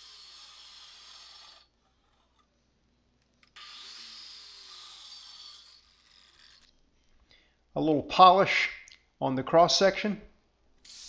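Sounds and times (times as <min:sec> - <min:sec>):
angle grinder cutting steel pipe: 0:00.0 - 0:01.8, 0:03.6 - 0:06.7.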